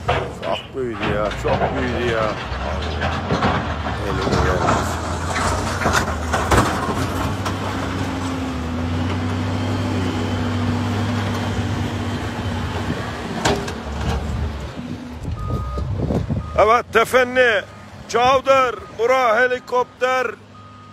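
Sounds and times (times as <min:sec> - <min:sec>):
engine running: 0:00.0 - 0:18.1.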